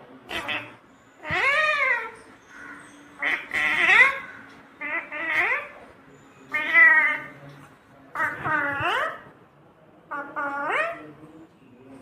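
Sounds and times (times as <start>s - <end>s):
parakeet calling: 0.3s - 7.5s, 8.1s - 9.3s.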